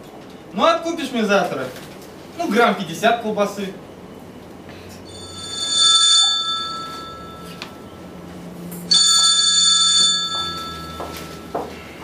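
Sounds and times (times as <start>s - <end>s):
telephone ringing: 5.1s - 8.0s, 8.9s - 11.9s.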